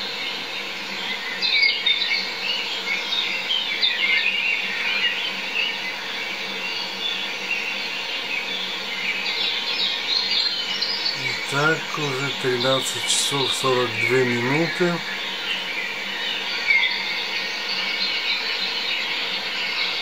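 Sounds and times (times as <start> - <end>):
steady hiss: 11.2 - 15.5.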